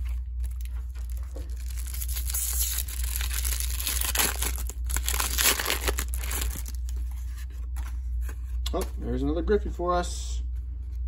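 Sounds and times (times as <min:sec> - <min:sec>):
plastic wrapper crinkling: 0:00.0 - 0:07.2.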